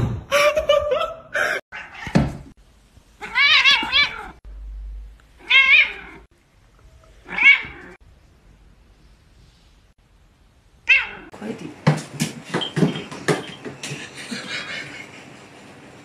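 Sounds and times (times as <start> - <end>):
cat meowing: 3.2 - 4.4.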